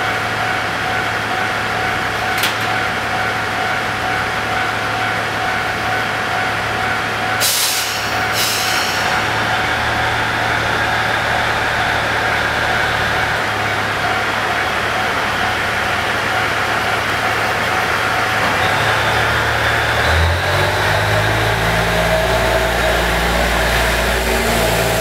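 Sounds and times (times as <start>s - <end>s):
diesel engine droning: 0.0s - 25.0s
compressed air hiss: 7.4s - 9.2s.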